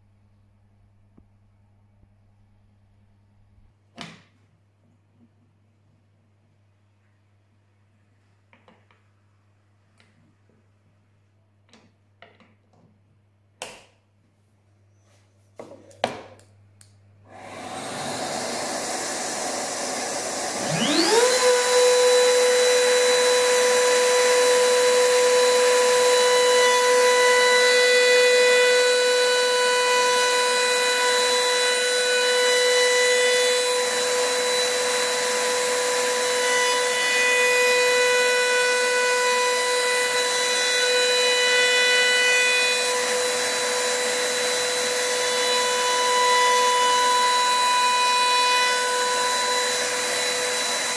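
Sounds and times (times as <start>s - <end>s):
router motor high whine: 17.3s - 50.9s.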